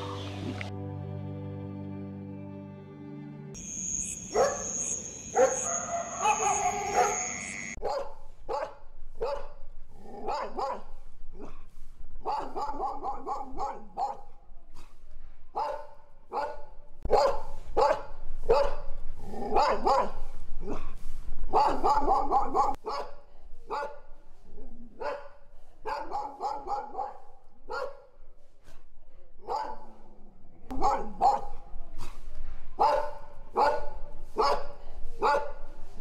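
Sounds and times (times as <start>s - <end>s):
dog barking: 4.3s - 15.0s, 15.6s - 24.1s, 25.0s - 28.1s, 29.4s - 30.0s, 30.7s - 32.2s, 32.8s - 35.6s.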